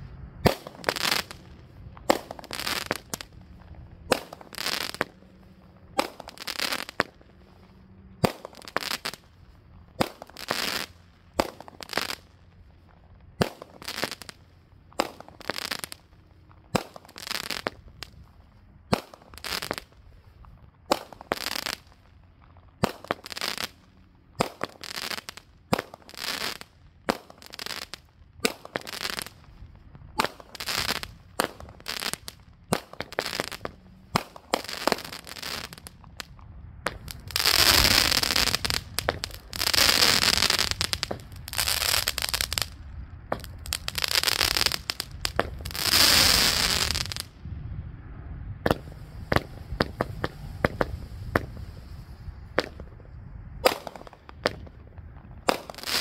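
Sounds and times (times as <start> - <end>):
firework bursts in the air: 0.4 - 12.4, 13.4 - 47.3, 48.6 - 56.0
firework launch thumps: 48.6 - 51.8.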